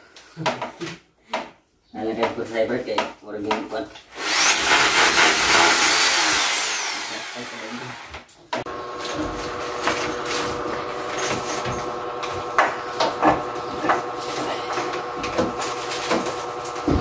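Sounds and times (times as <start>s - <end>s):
power drill whining: 4.1s - 17.0s.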